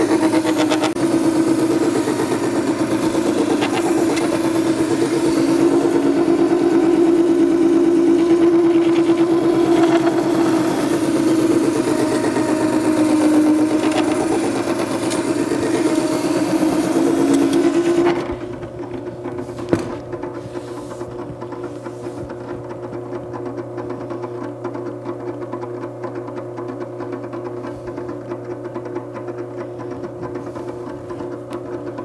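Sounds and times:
motor hum: 0:00.0 - 0:32.0
knife grinding on wet stone: 0:03.2 - 0:04.5, 0:08.2 - 0:12.1, 0:13.0 - 0:15.2.

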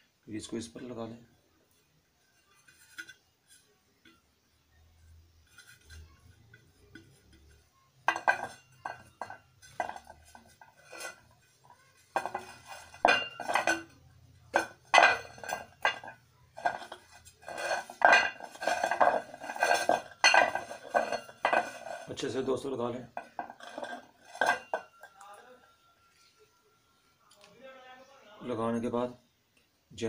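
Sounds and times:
metal plate clinking on hard floor: 0:06.9 - 0:13.9, 0:14.5 - 0:22.2, 0:23.2 - 0:25.4.

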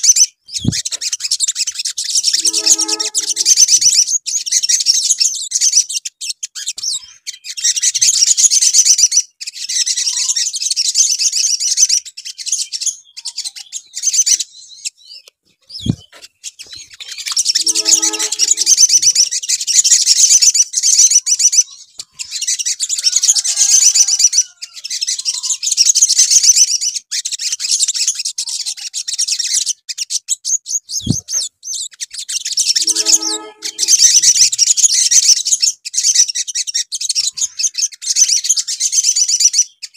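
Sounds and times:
birds twittering: 0:00.5 - 0:04.2.

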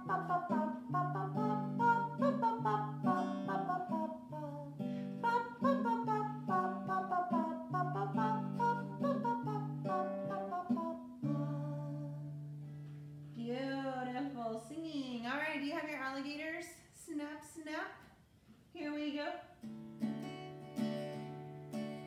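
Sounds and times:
acoustic guitar strumming: 0:00.0 - 0:13.4, 0:19.6 - 0:22.0.

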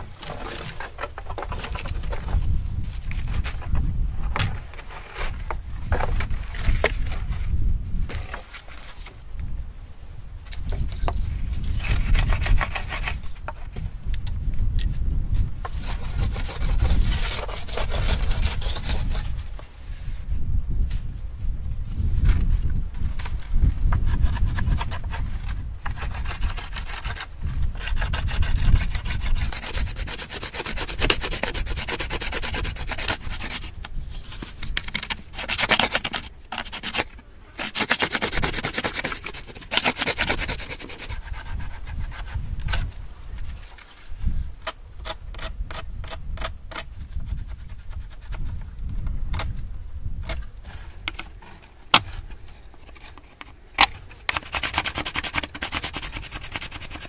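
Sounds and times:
stone tool scraping: 0:25.9 - 0:33.7, 0:35.3 - 0:42.9, 0:54.3 - 0:57.0.

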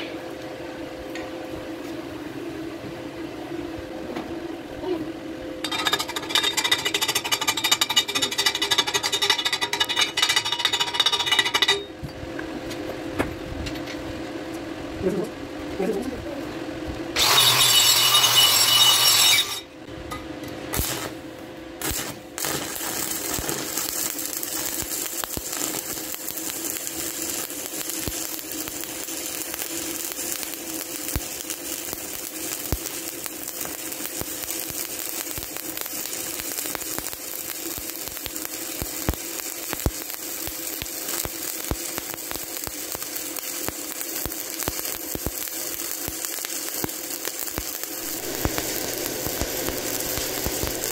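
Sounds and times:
welding arc crackling: 0:05.6 - 0:11.9, 0:17.2 - 0:19.6, 0:20.7 - 0:50.9.

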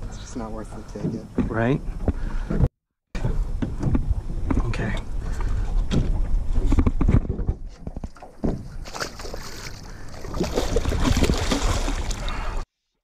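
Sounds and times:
water splashing and sloshing: 0:00.0 - 0:12.7
thumps against boat hull: 0:05.9 - 0:09.1.

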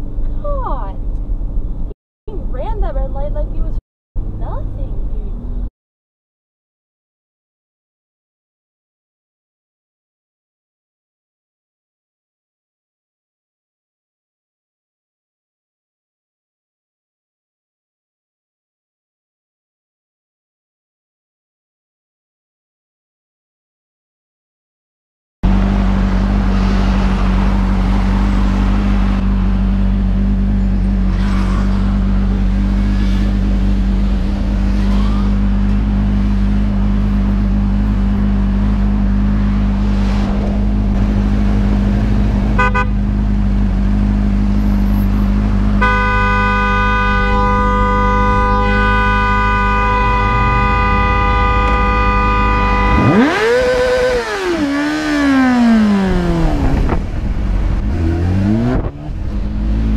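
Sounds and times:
motorcycle engine revving: 0:25.4 - 0:59.9
vehicle horn held: 0:42.6 - 0:43.0, 0:45.8 - 0:53.4.

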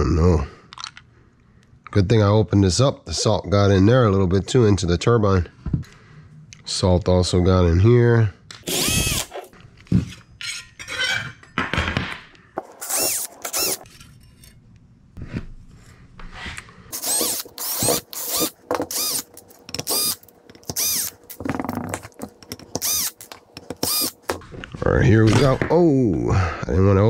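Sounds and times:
cordless drill spinning: 0:08.6 - 0:09.5, 0:12.6 - 0:13.9, 0:16.9 - 0:21.6, 0:22.7 - 0:24.3.

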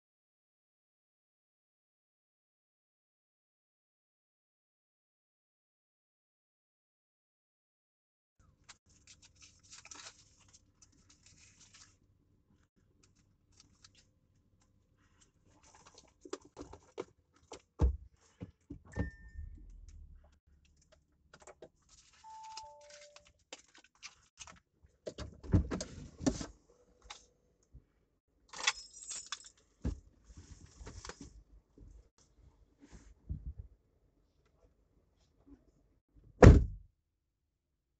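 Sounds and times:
rummaging in a car cabin: 0:15.1 - 0:27.2, 0:28.5 - 0:32.1
short high beep: 0:22.2 - 0:23.2.

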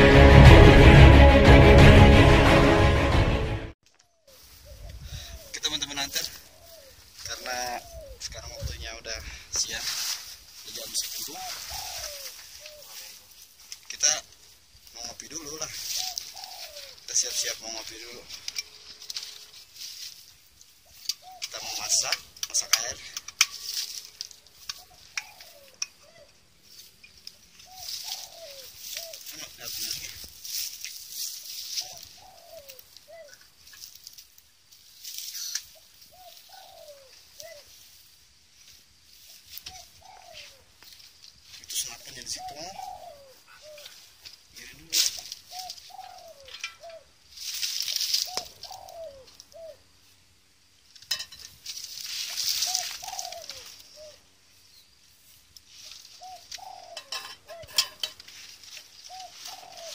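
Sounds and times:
dove cooing: 0:06.4 - 0:09.0, 0:10.8 - 0:13.3, 0:15.7 - 0:18.2, 0:20.9 - 0:23.3, 0:24.6 - 0:26.4, 0:27.6 - 0:30.2, 0:31.6 - 0:33.5, 0:35.4 - 0:37.8, 0:39.6 - 0:40.8, 0:41.8 - 0:47.1, 0:48.0 - 0:50.0, 0:52.1 - 0:54.4, 0:55.8 - 0:59.9
faint high hiss: 0:23.6 - 0:46.0.

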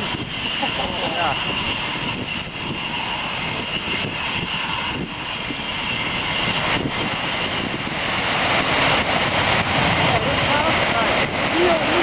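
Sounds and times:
jet engine whine: 0:00.0 - 0:12.0.

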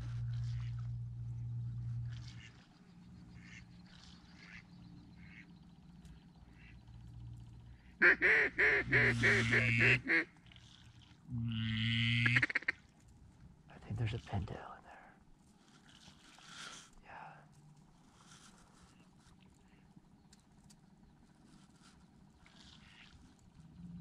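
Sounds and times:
duck call quacks: 0:04.4 - 0:04.6, 0:08.0 - 0:10.3, 0:11.8 - 0:12.8.

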